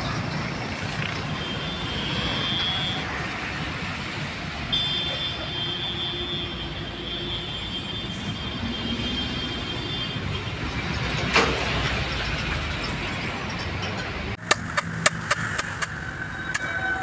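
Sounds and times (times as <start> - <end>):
workshop noise: 10.1 - 17.0.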